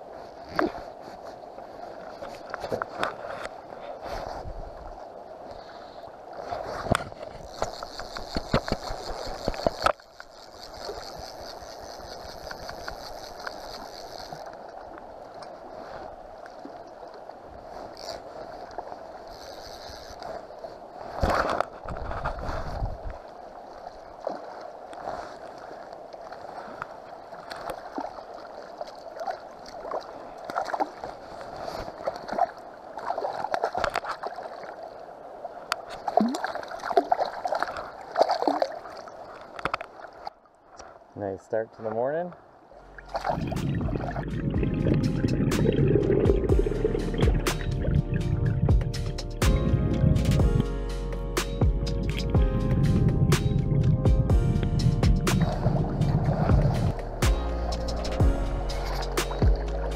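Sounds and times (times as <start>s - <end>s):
river water running: 0.0s - 59.9s
fly reel clicking: 7.4s - 14.6s, 19.2s - 20.4s
fish splashing: 42.8s - 49.5s.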